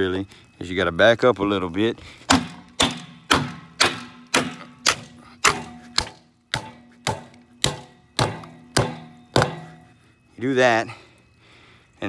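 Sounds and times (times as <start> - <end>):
hammer striking metal valve: 2.3 - 9.8.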